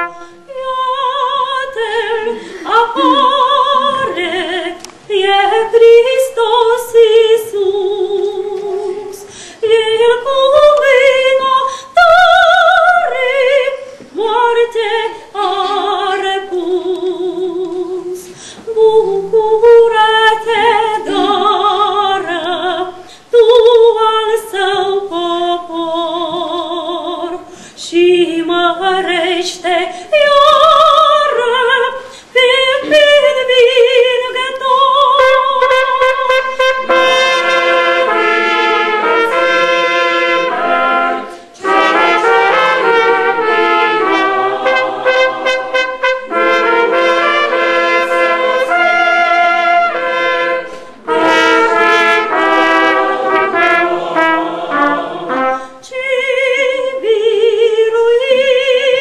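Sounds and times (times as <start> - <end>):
women's choir singing a hymn: 0.0 - 59.0.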